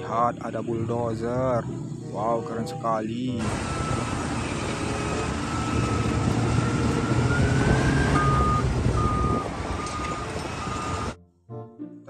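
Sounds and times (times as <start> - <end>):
diesel engine under load: 3.3 - 11.2
reversing alarm beeps: 3.5 - 11.2.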